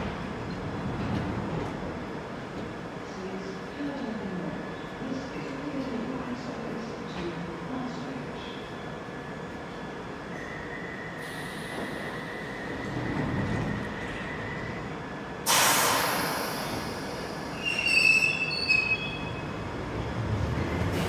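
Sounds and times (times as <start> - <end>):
train rumble moving off: 11.2 - 21.0
loud air hiss: 15.4 - 17.7.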